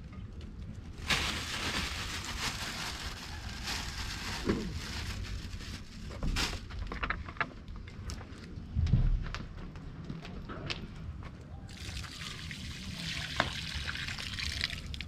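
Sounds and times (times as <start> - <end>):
plastic bag rustling: 0.9 - 7.4.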